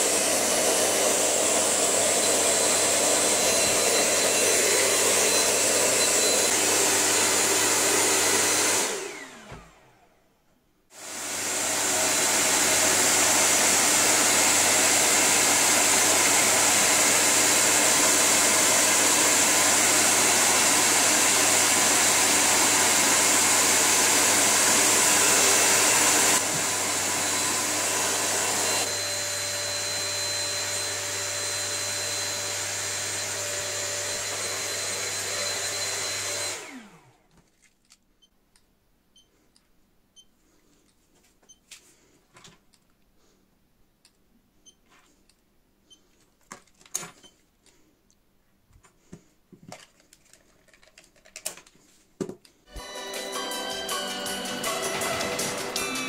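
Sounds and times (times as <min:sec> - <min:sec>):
hair dryer blowing: 0:00.0 - 0:10.1, 0:10.9 - 0:37.3, 0:52.7 - 0:56.0.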